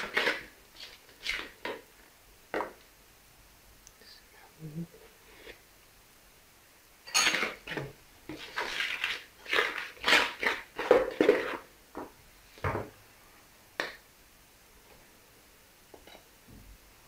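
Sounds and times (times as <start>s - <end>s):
spoon scraping batter in bowl: 0.0s - 1.8s, 7.1s - 11.7s.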